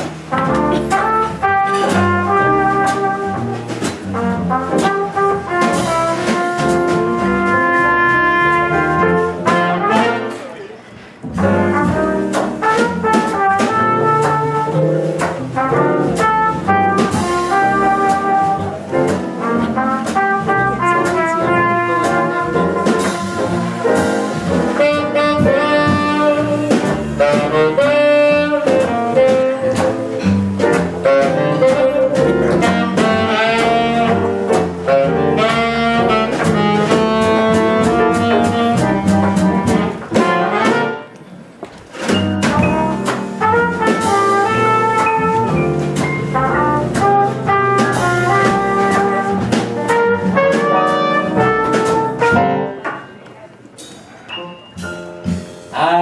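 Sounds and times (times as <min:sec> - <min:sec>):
upright bass: 0:00.0 - 0:10.5, 0:11.2 - 0:41.0, 0:42.0 - 0:52.8
drum kit: 0:00.0 - 0:56.0
piano: 0:00.0 - 0:56.0
trumpet: 0:00.3 - 0:10.6, 0:11.4 - 0:41.2, 0:42.2 - 0:53.0
saxophone: 0:19.6 - 0:30.1, 0:31.0 - 0:41.2.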